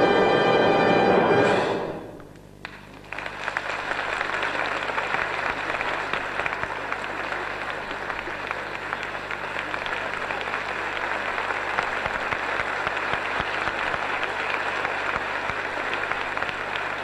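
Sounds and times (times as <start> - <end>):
orchestra closing chord: 0.0 - 2.3
audience applause: 2.6 - 17.0.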